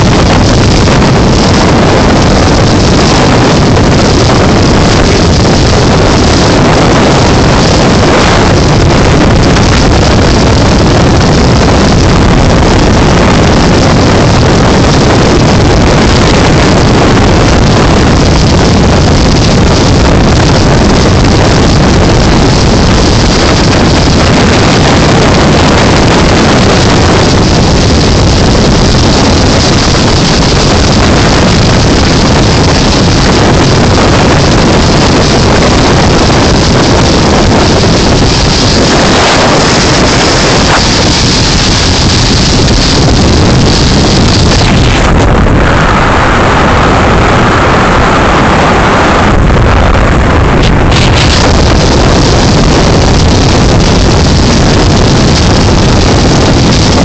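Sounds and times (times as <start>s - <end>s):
motorboat running at speed: 0.0s - 57.0s
wind buffeting the microphone: 0.0s - 57.0s.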